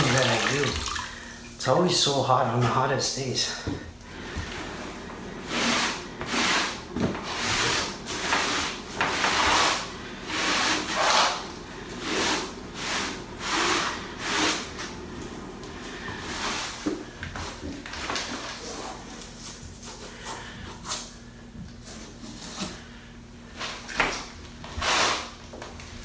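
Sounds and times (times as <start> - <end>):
sponge wiping mortar: 5.4 - 14.9.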